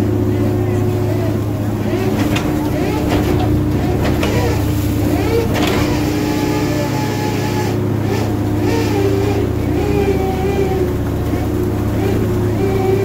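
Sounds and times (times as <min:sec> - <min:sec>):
boat engines droning: 0:00.0 - 0:13.0
net-hauling machinery: 0:00.0 - 0:13.0
water splashing: 0:01.4 - 0:13.0.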